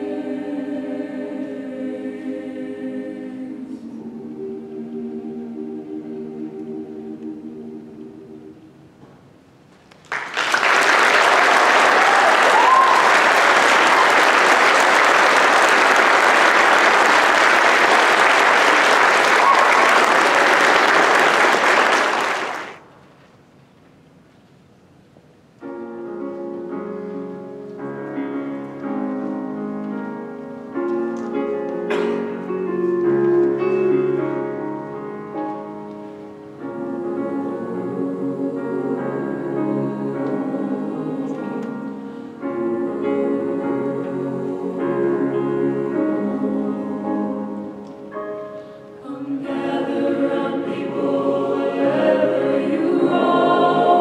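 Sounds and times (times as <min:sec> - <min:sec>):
piano playing sustained chords: 0:00.0 - 0:09.0, 0:25.6 - 0:54.0
audience applauding: 0:09.9 - 0:22.8.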